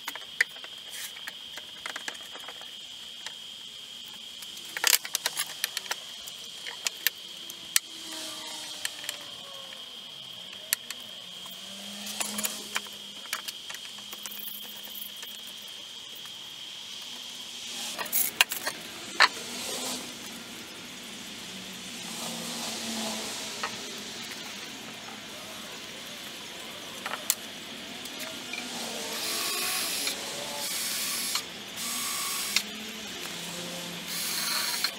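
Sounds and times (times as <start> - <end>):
clicks and knocks of metal and wood: 0.0 - 3.4, 4.1 - 7.2, 10.5 - 15.6
faint high whine: 0.0 - 34.9.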